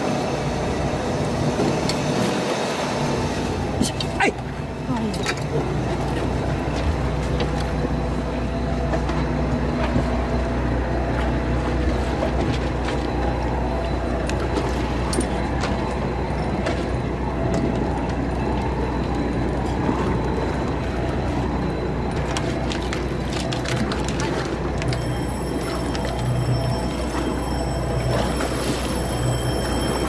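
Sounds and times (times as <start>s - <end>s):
boat engine droning: 0.0s - 30.0s.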